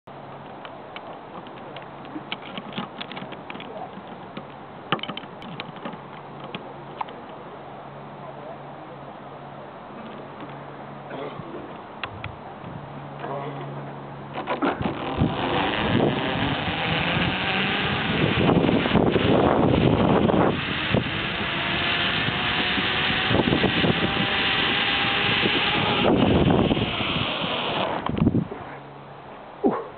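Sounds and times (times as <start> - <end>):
zip line trolley on cable: 1.4 - 7.4, 14.3 - 28.3
wind rushing over microphone: 14.6 - 28.8.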